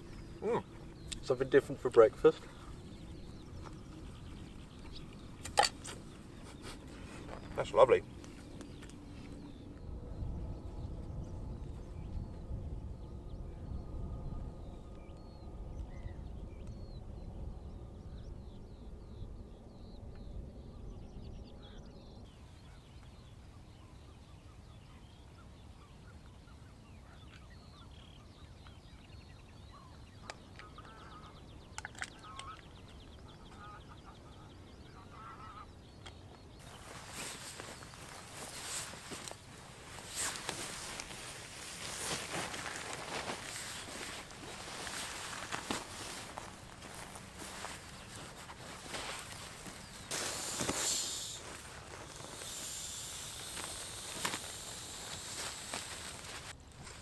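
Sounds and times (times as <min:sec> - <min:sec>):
birds calling: 0:00.0 - 0:57.0
low rumble: 0:09.0 - 0:22.2
geese honking: 0:32.2 - 0:35.8.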